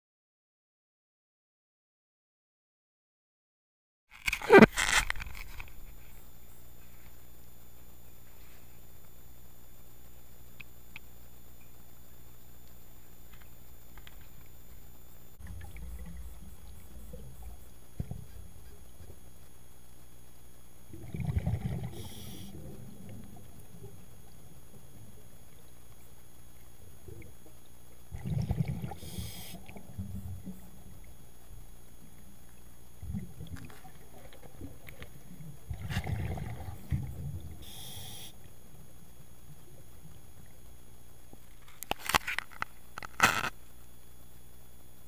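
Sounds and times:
exhaled bubbles rumbling underwater: 0:15.4 - 0:19.3, 0:20.8 - 0:25.7, 0:26.6 - 0:37.7
regulator hiss: 0:22.0 - 0:22.6, 0:29.0 - 0:29.6, 0:37.6 - 0:38.5.

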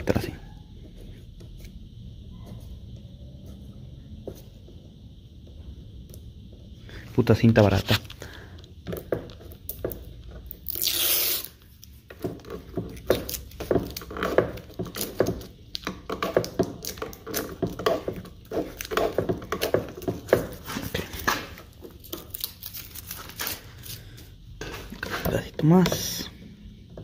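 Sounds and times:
tape peeling off a panel: 0:10.5 - 0:11.8, 0:20.6 - 0:24.0.

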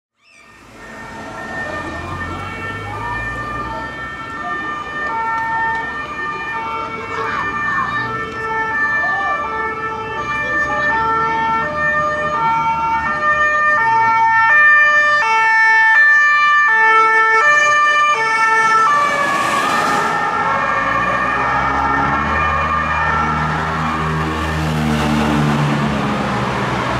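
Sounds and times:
police car two-tone siren: 0:00.2 - 0:26.9
car passing by: 0:18.4 - 0:26.9.

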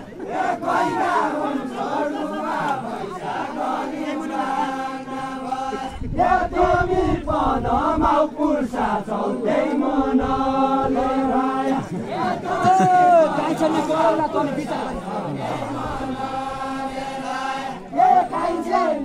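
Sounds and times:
group singing folk song in unison: 0:00.0 - 0:19.0.

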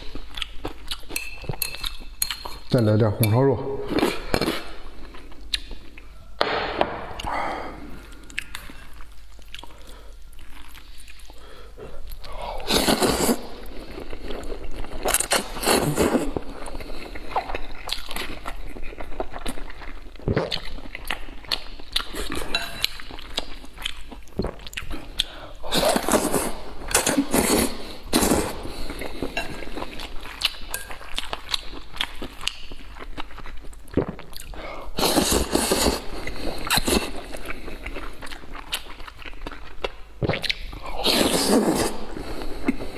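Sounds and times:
chewing and smacking: 0:00.0 - 0:02.7, 0:08.1 - 0:11.4, 0:16.4 - 0:26.3, 0:28.8 - 0:34.6, 0:36.2 - 0:40.8
noodle slurps: 0:40.2 - 0:42.2.

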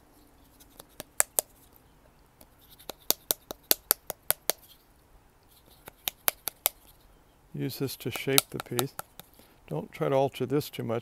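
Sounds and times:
wooden paddle slapping wet clay: 0:08.1 - 0:09.3.

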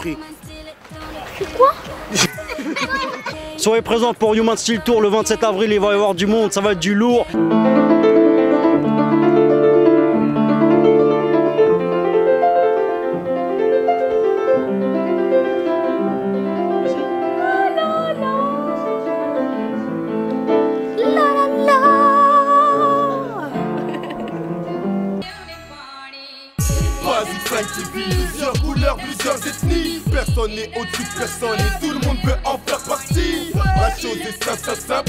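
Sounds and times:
woman singing with vibrato: 0:00.0 - 0:03.6, 0:16.8 - 0:19.5, 0:20.9 - 0:24.2, 0:25.2 - 0:35.0
upright piano chords: 0:07.3 - 0:25.3.

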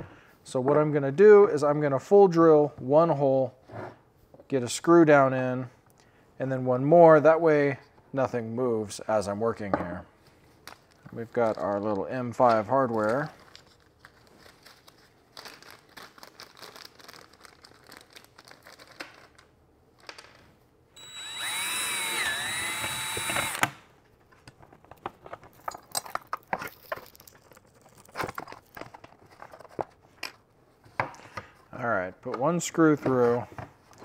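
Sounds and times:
cordless drill whining: 0:21.0 - 0:23.8
hardware clicks and rustles: 0:24.2 - 0:31.5.

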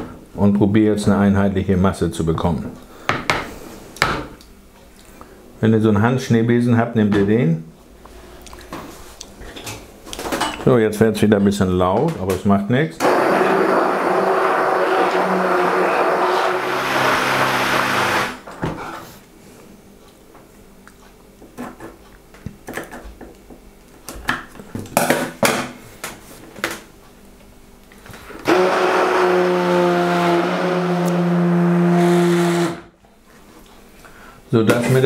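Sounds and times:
immersion blender motor hum: 0:13.0 - 0:18.4, 0:28.4 - 0:32.9.

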